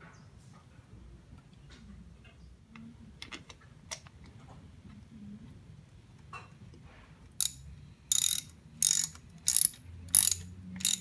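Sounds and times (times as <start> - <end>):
ratchet wrench clicking: 7.4 - 11.0.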